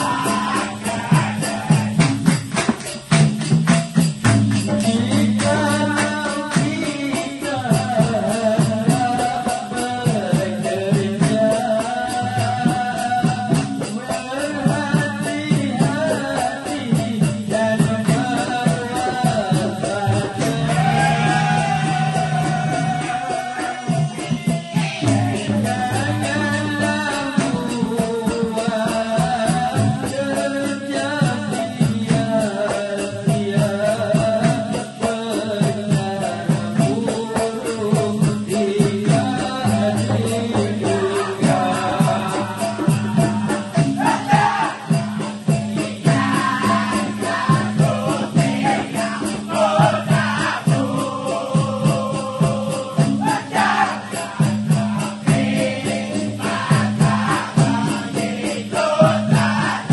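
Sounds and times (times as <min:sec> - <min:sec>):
solo voice singing: 0:00.0 - 0:02.0, 0:04.8 - 0:59.9
group chanting song: 0:00.0 - 0:03.6, 0:04.2 - 0:59.9
hand drums: 0:00.0 - 0:59.9
quick shaker beat: 0:00.0 - 0:59.9
people clapping: 0:00.4 - 0:06.8.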